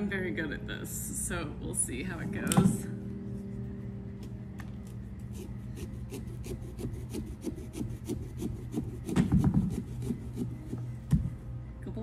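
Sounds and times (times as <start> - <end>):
small saw rasping through pumpkin: 5.3 - 10.8.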